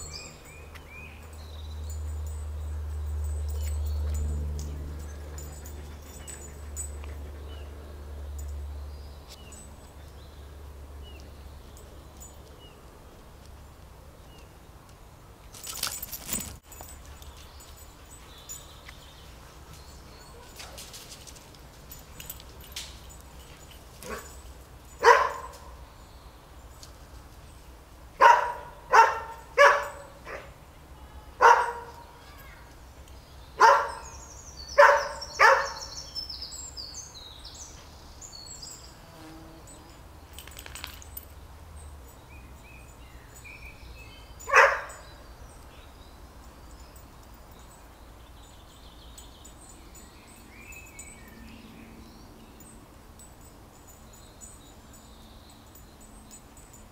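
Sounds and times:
dog barking: 25.0s - 25.6s, 28.2s - 30.6s, 31.4s - 32.1s, 33.6s - 34.1s, 34.8s - 35.9s, 44.5s - 45.0s.

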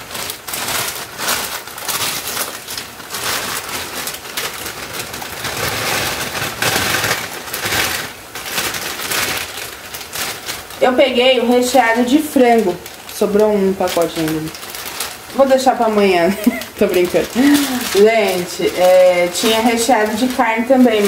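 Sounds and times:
frozen pasta dropping into water: 0.0s - 10.9s
plastic bag crinkling: 0.0s - 21.0s.

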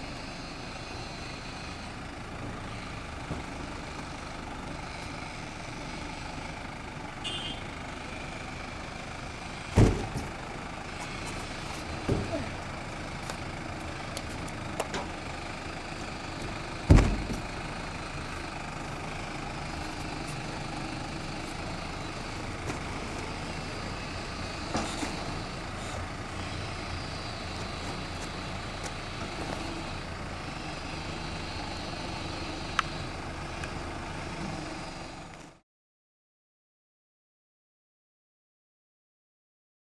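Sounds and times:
tractor diesel engine idling: 0.0s - 35.6s
loud thump: 9.7s - 10.3s, 12.0s - 12.4s, 16.9s - 17.4s.

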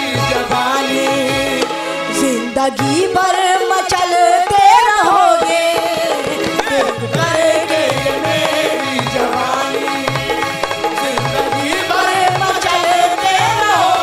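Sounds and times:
person singing melody: 0.0s - 14.0s
hand drum beats: 2.8s - 14.0s.

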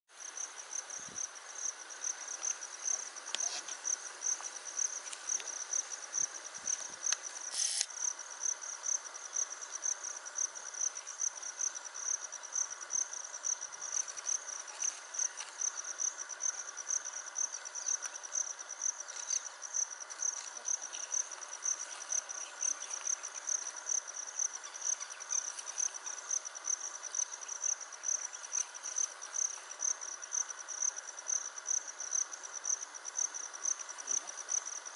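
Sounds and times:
insects chirring: 0.1s - 34.9s
burst of hiss: 7.4s - 8.0s.

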